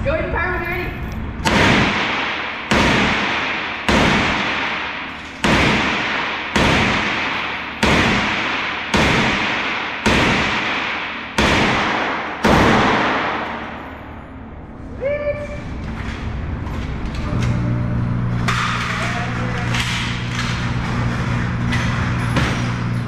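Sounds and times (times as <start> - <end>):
handgun shots with echo: 1.4 - 14.0.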